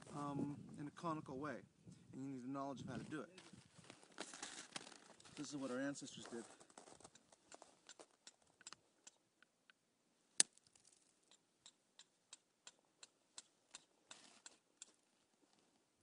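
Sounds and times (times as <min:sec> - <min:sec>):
stone striking flint: 0:10.4 - 0:12.8.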